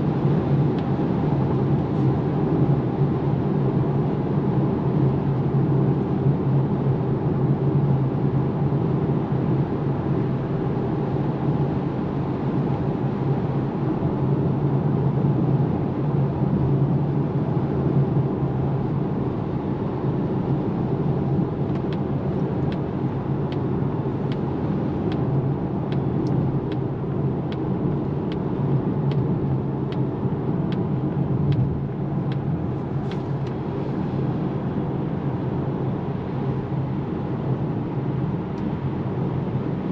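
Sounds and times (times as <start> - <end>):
tyre and road noise in car cabin: 0.0 - 39.9.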